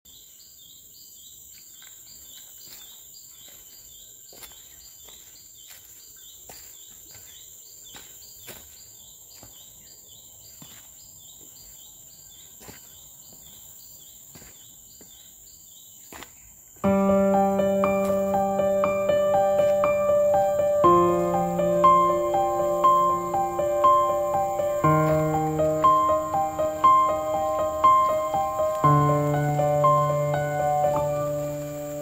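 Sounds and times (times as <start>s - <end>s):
insects buzzing: 0.7s - 32.0s
footsteps on dry leaves: 1.8s - 9.8s, 20.9s - 30.4s.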